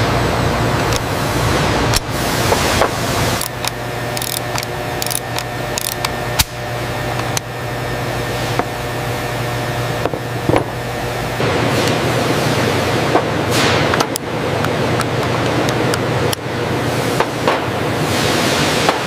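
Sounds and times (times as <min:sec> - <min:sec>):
steady mechanical hum: 0:00.0 - 0:19.0
sharp metallic clicks: 0:03.4 - 0:06.5.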